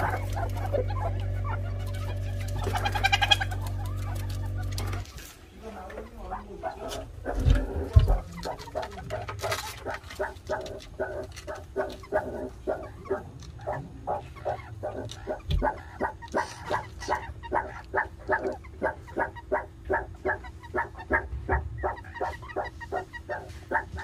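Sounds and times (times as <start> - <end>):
meerkats calling: 0.0 - 24.0.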